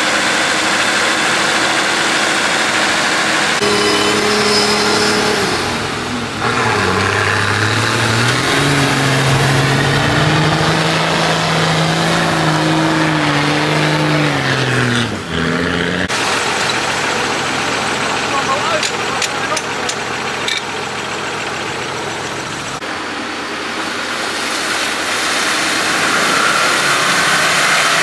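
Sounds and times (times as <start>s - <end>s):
off-road vehicle engine revving: 0.0s - 23.0s, 25.0s - 28.0s.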